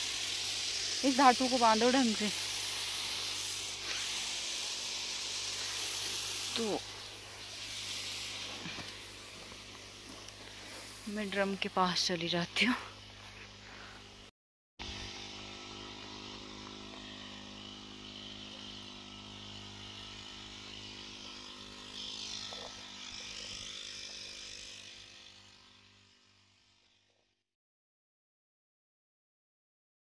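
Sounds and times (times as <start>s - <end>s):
hiss: 0.0s - 13.0s
spray pump engine running: 0.0s - 26.9s.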